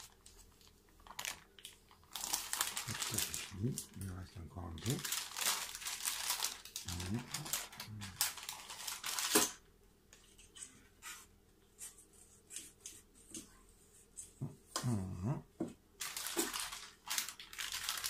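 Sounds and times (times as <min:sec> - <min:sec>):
plastic bag crinkling: 0:00.0 - 0:09.6, 0:16.0 - 0:18.0.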